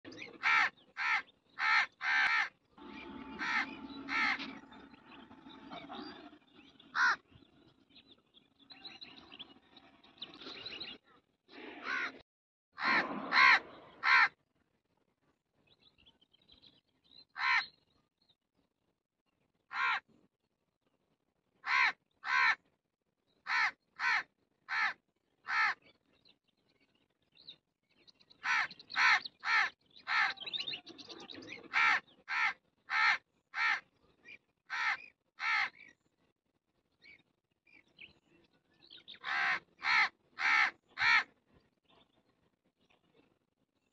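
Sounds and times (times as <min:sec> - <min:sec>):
crows cawing: 0:00.4 - 0:04.8, 0:06.9 - 0:07.2, 0:11.8 - 0:12.2, 0:12.8 - 0:14.4, 0:17.4 - 0:17.7, 0:19.7 - 0:20.0, 0:21.6 - 0:22.6, 0:23.5 - 0:25.8, 0:28.4 - 0:30.4, 0:31.7 - 0:33.8, 0:34.7 - 0:35.8, 0:39.2 - 0:41.3.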